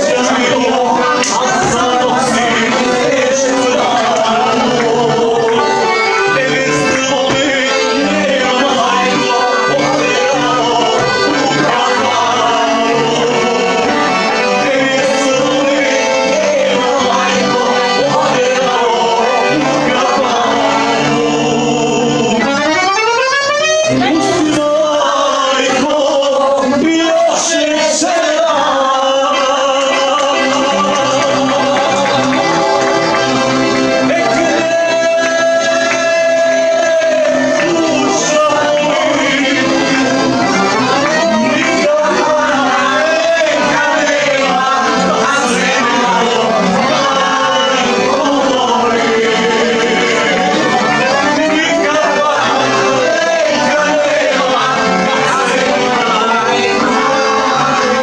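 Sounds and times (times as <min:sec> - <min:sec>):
repeating bass line: 0:00.0 - 0:24.7
accordion folk music: 0:00.0 - 0:58.0
person singing: 0:00.0 - 0:58.0.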